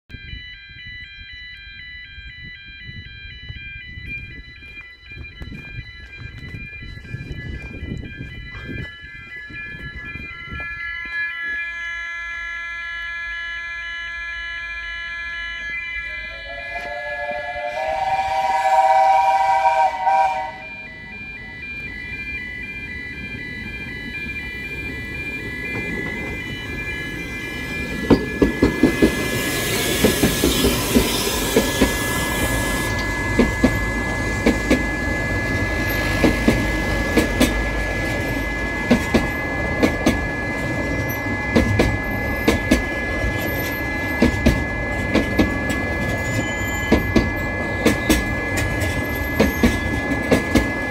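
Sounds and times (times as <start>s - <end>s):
level crossing alarm: 0.1s - 50.9s
steam locomotive whistle: 11.7s - 21.7s, 28.7s - 38.1s
steam train rumbling: 16.0s - 50.9s
train wheels clicking on rail joints: 21.0s - 50.9s
steam hissing: 28.6s - 37.7s.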